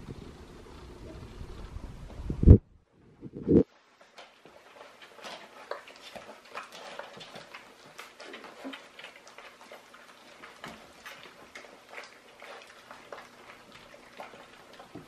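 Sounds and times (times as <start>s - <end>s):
puppies smacking and chewing: 3.7s - 15.0s.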